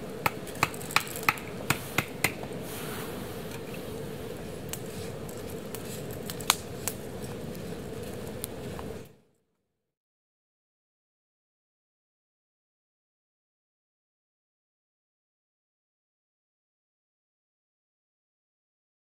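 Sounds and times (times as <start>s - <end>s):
broth boiling with steady hiss: 0.0s - 9.3s.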